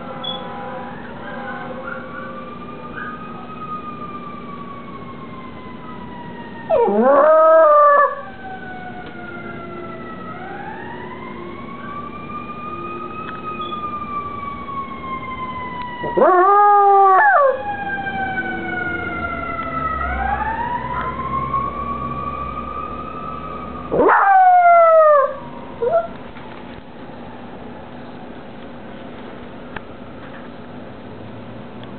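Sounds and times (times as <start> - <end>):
siren wailing: 0.0 - 26.3
dog howling: 0.6 - 3.5, 6.7 - 8.3, 16.0 - 17.7, 23.9 - 26.2.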